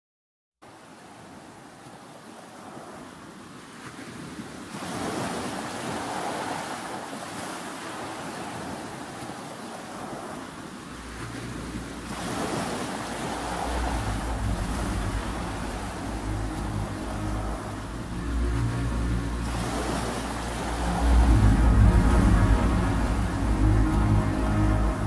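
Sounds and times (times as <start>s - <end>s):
ocean waves breaking: 0.8s - 25.0s
low bass note: 13.3s - 25.0s.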